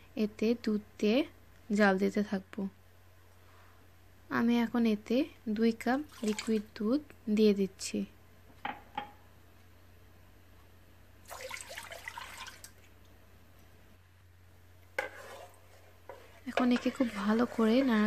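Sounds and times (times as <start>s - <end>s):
milk pouring into saucepan: 6.0s - 6.7s, 11.2s - 12.9s.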